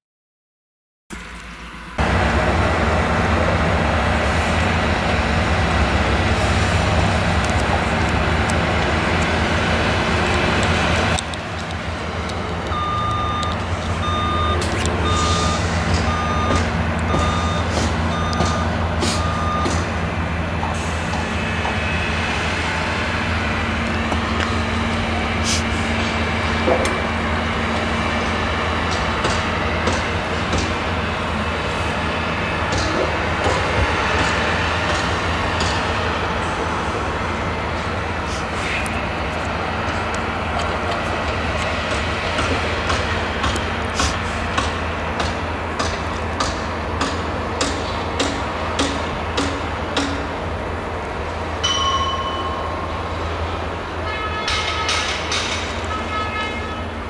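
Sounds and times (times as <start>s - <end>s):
combine harvester engine drone: 1.2s - 52.1s
reversing alarm beeps: 12.7s - 19.9s.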